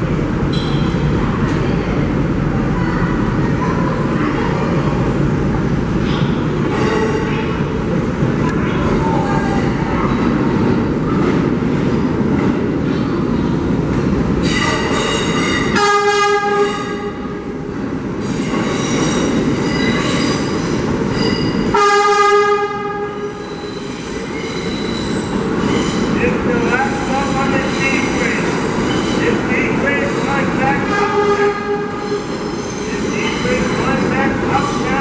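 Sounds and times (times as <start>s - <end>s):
train wheels rumbling on rails: 0.0s - 35.0s
train horn: 15.8s - 17.1s, 21.7s - 23.3s, 30.8s - 32.0s.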